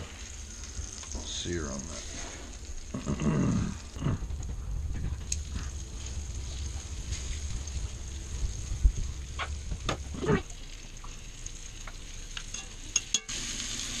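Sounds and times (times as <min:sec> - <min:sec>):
meat sizzling in fat: 0:00.0 - 0:14.0
tongs clicking and scraping: 0:11.8 - 0:13.3.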